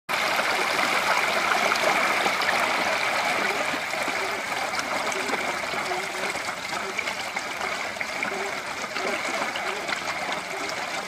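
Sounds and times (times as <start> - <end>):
stream running over rocks: 0.1 - 11.0.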